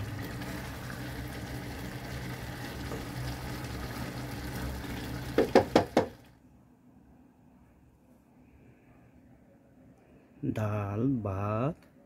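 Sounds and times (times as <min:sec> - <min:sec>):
gas stove hum and hiss: 0:00.0 - 0:06.1
sharp knocks: 0:05.4 - 0:06.2.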